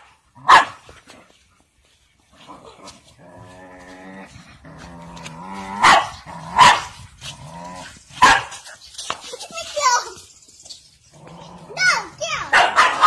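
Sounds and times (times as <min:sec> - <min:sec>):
dog barking: 0:00.0 - 0:00.8, 0:05.7 - 0:07.0, 0:08.2 - 0:08.6, 0:12.4 - 0:13.0
dog growling: 0:02.4 - 0:08.1, 0:11.1 - 0:12.2.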